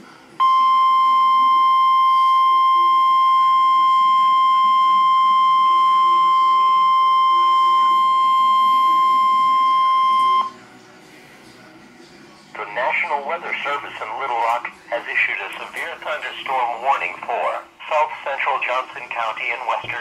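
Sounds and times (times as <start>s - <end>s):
steady alarm tone: 0.4s - 10.6s.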